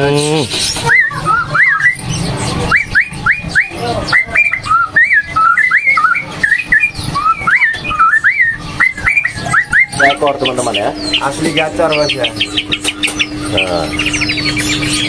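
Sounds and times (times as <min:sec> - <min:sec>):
bird singing whistled notes: 0:00.0 - 0:15.0.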